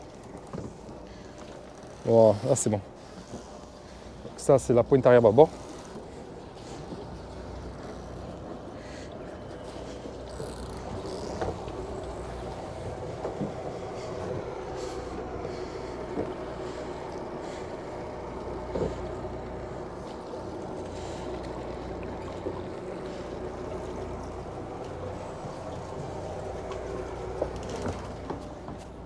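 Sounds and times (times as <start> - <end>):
boat engines idling: 0.0 - 29.0.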